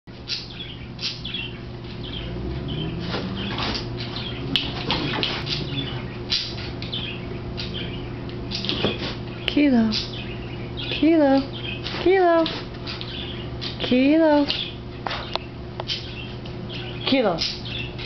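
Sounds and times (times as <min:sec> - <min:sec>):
electric fan humming: 0:00.1 - 0:18.0
dogs scuffling on carpet: 0:02.9 - 0:05.9.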